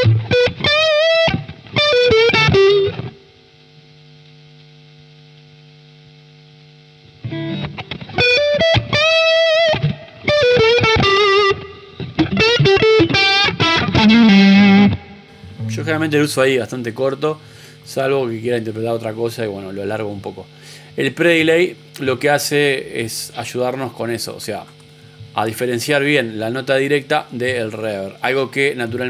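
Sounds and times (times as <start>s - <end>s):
electric guitar lead phrases: 0.0s - 3.5s, 7.0s - 22.9s.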